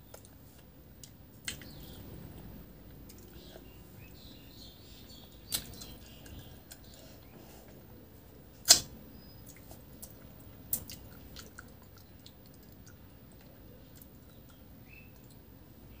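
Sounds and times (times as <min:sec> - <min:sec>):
chewing: 0:09.4 - 0:15.5.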